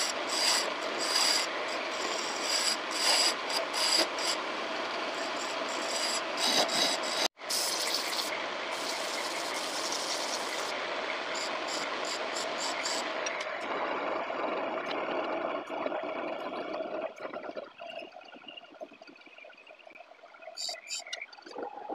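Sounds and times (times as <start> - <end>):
chisel cutting wood hissing: 0.0 - 4.4, 5.1 - 10.7
wood lathe running: 0.0 - 7.3.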